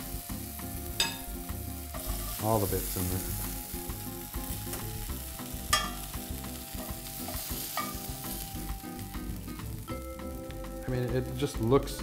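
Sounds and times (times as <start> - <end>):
pan sizzling: 0.0 - 12.0
metal tongs scraping skillet: 1.0 - 1.3, 5.7 - 6.1, 6.7 - 8.2.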